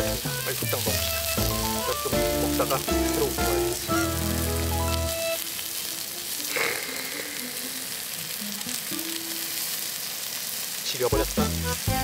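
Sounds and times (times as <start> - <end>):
background music: 0.0 - 7.6, 11.2 - 12.0
pork sizzling in a pan: 0.0 - 12.0.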